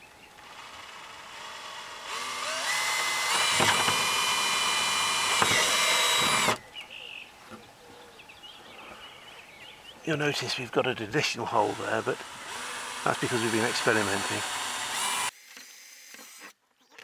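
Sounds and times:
cordless drill boring through plastic: 0.4s - 6.6s, 11.4s - 16.5s.

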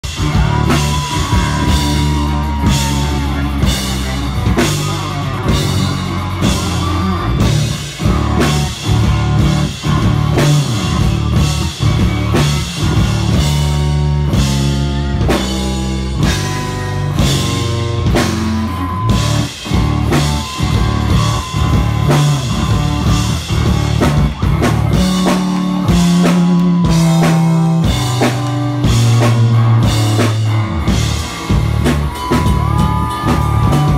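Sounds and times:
drum kit beat: 0.0s - 33.9s
electric bass guitar: 0.0s - 33.9s.

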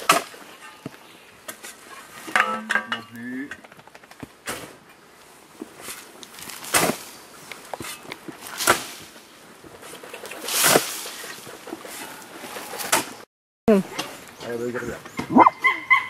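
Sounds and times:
shovel digging into sandy earth: 5.7s - 9.2s, 9.8s - 13.2s.

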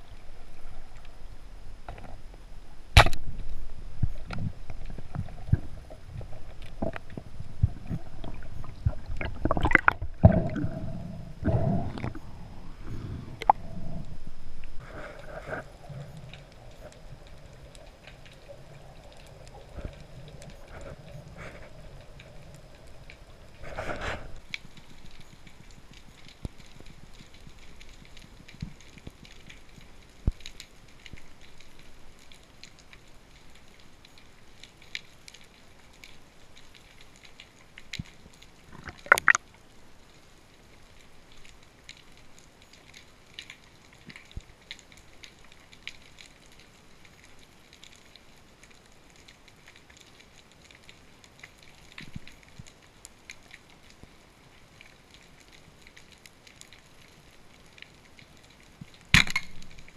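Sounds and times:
faint underwater hiss: 0.0s - 34.4s
short clicks and crackles: 3.0s - 10.4s.

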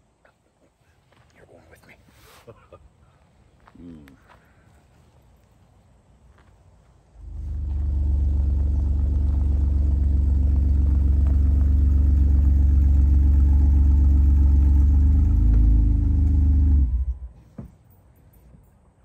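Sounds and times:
vehicle engine running: 7.0s - 17.4s.

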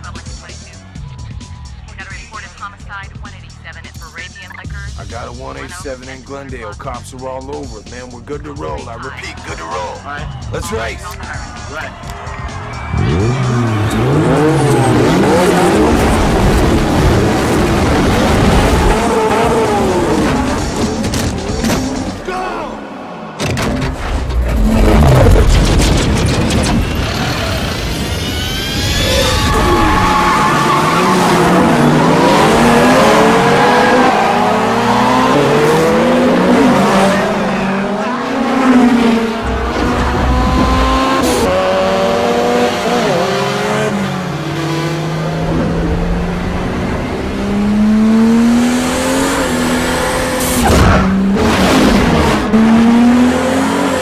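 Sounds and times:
car engines revving: 0.0s - 54.0s
tyre squeal: 26.8s - 31.8s.

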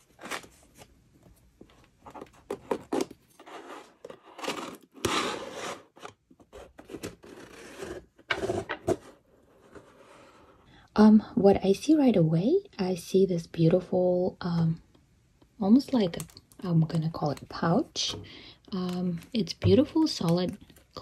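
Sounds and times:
cardboard scraping: 2.0s - 10.5s.

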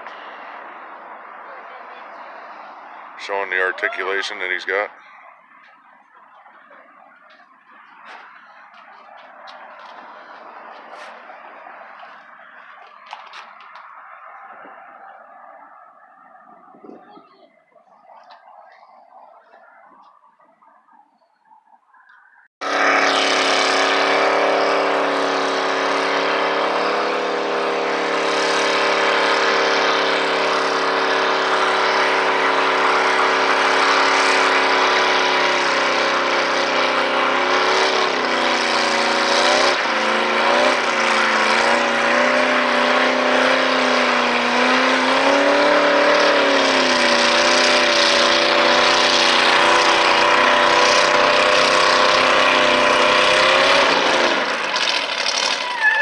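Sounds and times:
car engine revving: 0.0s - 56.0s
tyres spinning on pavement: 26.0s - 56.0s.

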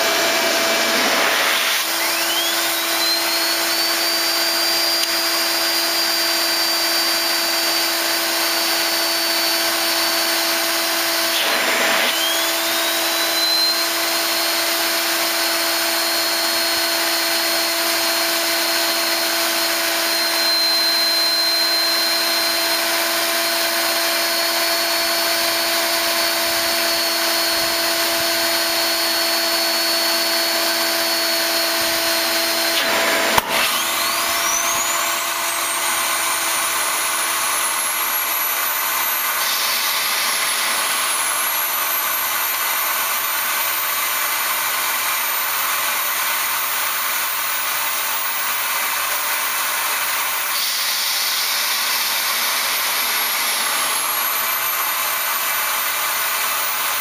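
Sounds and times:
air blower motor hum: 0.0s - 43.6s, 49.6s - 57.0s
turbo whine: 0.0s - 44.0s.

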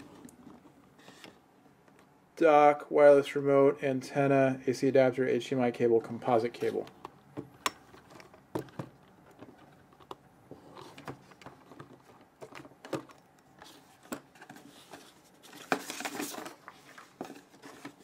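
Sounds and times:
packaging rustling scrape: 13.6s - 18.0s.

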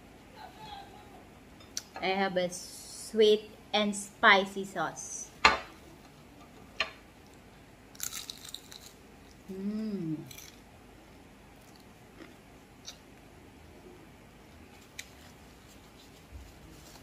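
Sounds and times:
fried wrapper crunching: 7.9s - 9.0s
person humming: 9.5s - 10.4s
quiet chewing: 11.6s - 13.3s.

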